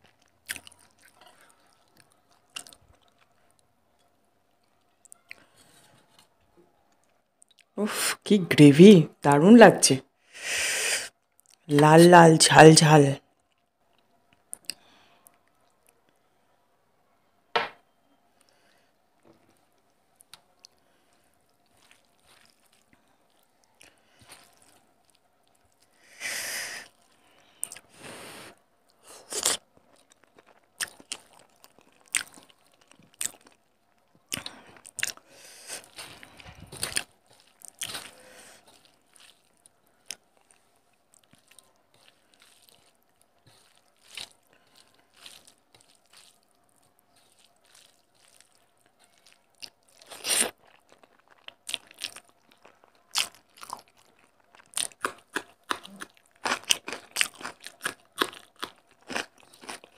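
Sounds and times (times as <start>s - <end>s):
wet squishing of rice: 0.0s - 7.8s, 19.5s - 26.0s, 28.8s - 59.9s.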